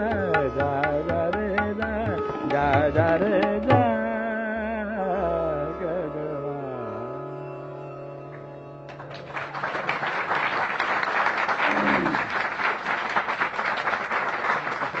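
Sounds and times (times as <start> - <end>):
person singing: 0.0 - 7.1
tanpura drone: 6.6 - 9.0
audience applause: 9.0 - 15.0.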